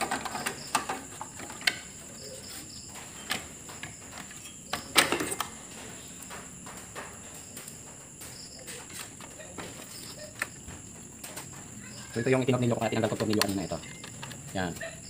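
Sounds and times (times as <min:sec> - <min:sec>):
plastic clicks and knocks: 0:13.1 - 0:14.5.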